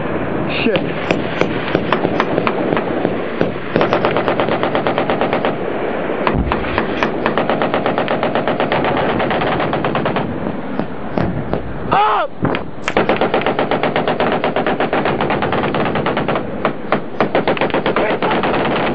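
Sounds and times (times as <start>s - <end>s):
scattered gunshots: 0.8s - 5.6s, 6.3s - 11.4s, 12.8s - 18.9s
machine gun firing rapid bursts: 1.0s - 5.6s, 6.6s - 11.3s, 12.8s - 18.9s
low thump: 6.3s - 7.1s, 10.8s - 11.7s.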